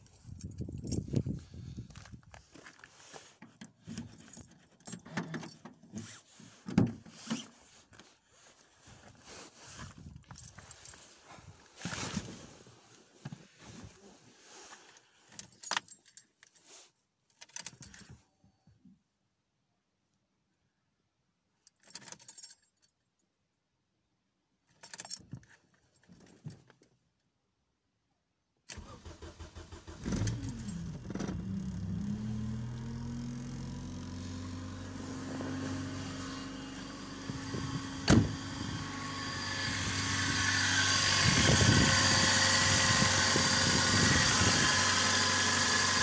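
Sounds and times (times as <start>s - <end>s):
car keys jangling: 0.0s - 1.3s, 28.8s - 33.5s
car keys jangling in ignition: 0.0s - 1.4s, 3.9s - 6.0s, 15.4s - 16.6s, 17.3s - 18.2s, 21.7s - 23.0s, 24.7s - 26.8s, 28.7s - 33.6s.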